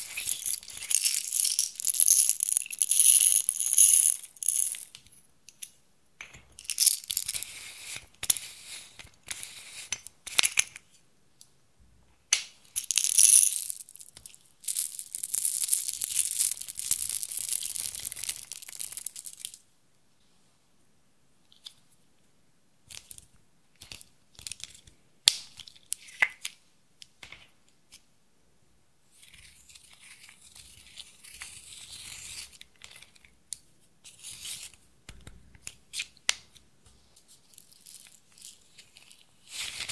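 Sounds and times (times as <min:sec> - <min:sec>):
beads poured into glass dish: 0:00.0 - 0:04.9, 0:06.6 - 0:07.5, 0:12.8 - 0:19.6.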